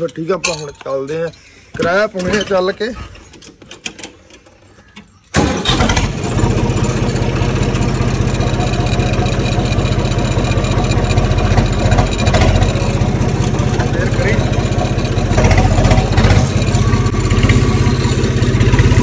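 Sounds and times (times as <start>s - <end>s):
tractor diesel engine running: 5.3s - 19.0s.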